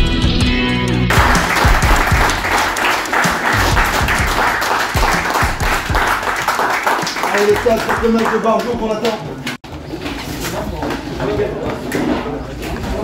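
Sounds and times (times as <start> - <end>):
music: 0.0 - 9.6
crowd applauding: 1.1 - 9.2.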